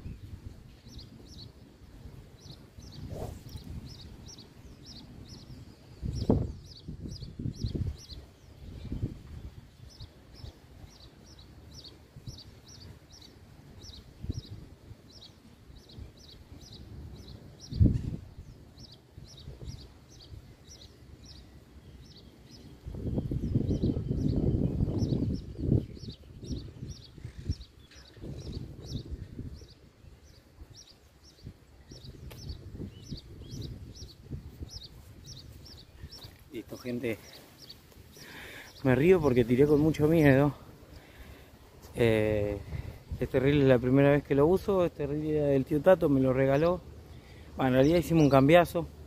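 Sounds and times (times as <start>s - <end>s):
wind on microphone: 0.0s - 44.2s
small bird chirping: 2.4s - 41.2s.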